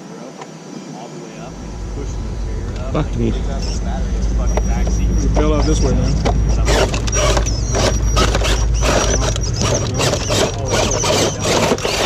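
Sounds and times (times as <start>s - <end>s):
motor and gears whirring: 1.4s - 12.0s
chassis scraping on stone: 5.4s - 12.0s
tyres scrabbling on rock: 5.5s - 12.0s.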